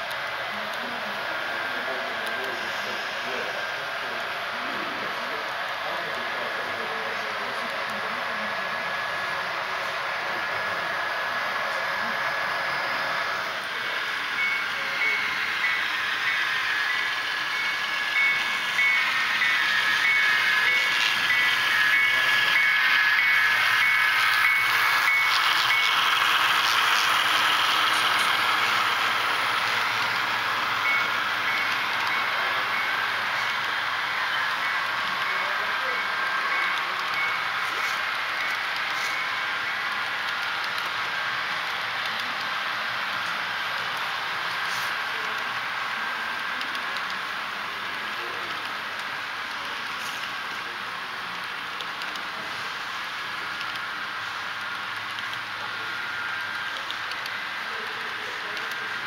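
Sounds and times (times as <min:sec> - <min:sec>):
model train cars rolling on track: 0:00.0 - 0:59.0
small electronic bell dinging: 0:30.8 - 0:33.5.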